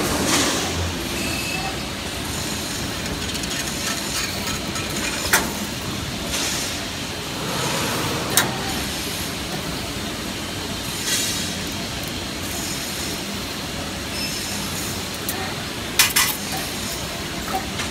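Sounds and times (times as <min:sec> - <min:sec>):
wire bending machine running: 0:01.8 - 0:10.0.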